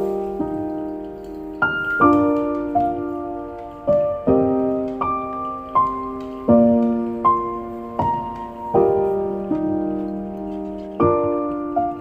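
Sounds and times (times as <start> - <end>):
slow piano music: 0.0 - 12.0.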